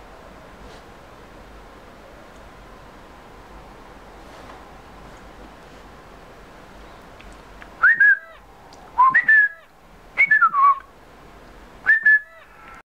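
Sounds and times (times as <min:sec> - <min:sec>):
person whistling notes: 0:07.8 - 0:08.3, 0:09.0 - 0:09.6, 0:10.2 - 0:10.9, 0:11.9 - 0:12.3.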